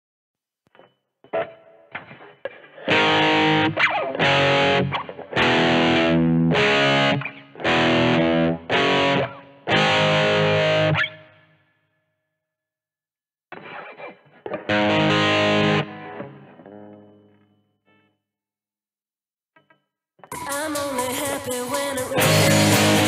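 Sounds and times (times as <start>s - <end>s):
distorted electric guitar chords: 1.3s - 11.4s, 13.5s - 17.4s, 20.3s - 23.0s.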